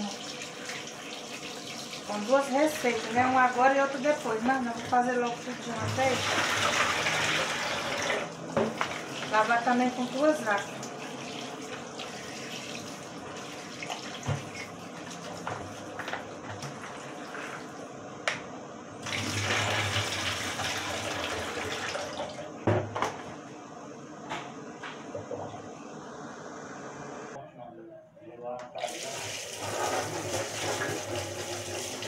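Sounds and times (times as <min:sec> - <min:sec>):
tap water running: 0:00.0 - 0:17.9, 0:19.0 - 0:23.1, 0:28.7 - 0:32.0.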